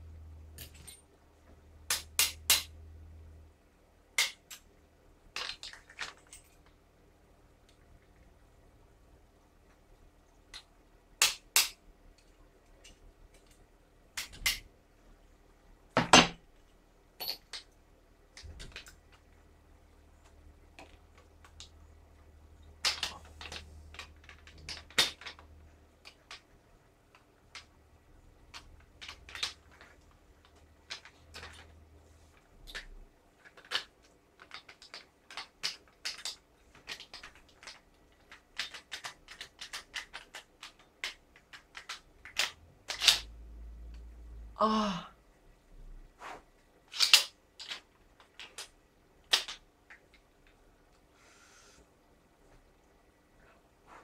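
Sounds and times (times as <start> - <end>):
small rifle parts clicking: 28.4 - 31.8, 32.4 - 43.3, 46.9 - 50.6.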